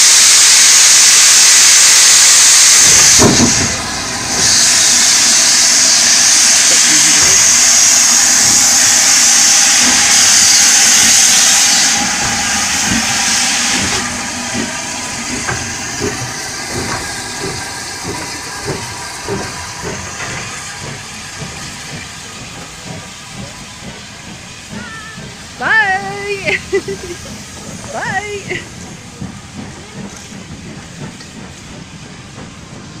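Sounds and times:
steam hissing from cylinders: 0.0s - 33.0s
locomotive rhythmic knocking: 9.0s - 33.0s.

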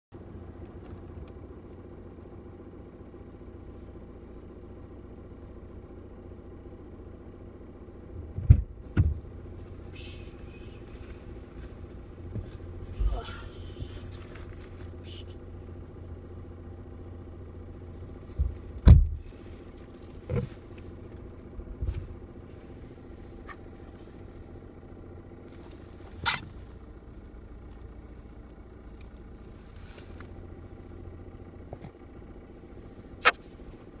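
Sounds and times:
car engine idling: 0.1s - 34.0s
knocks and clunks: 8.2s - 9.4s, 18.2s - 19.3s, 20.2s - 20.8s.

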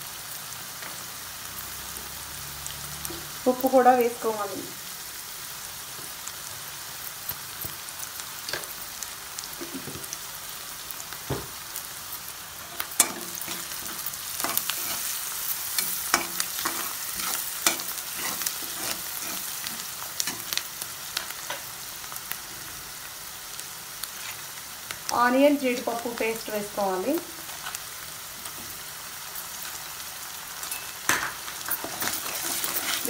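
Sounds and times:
onions sizzling in hot oil: 0.0s - 33.0s
metal spatula scraping a pan: 12.6s - 20.6s, 30.6s - 33.0s.

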